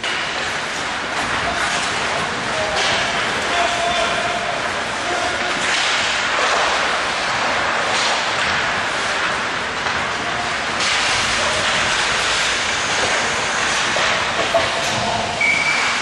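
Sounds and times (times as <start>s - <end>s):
skate blades scraping ice: 5.1s - 16.0s.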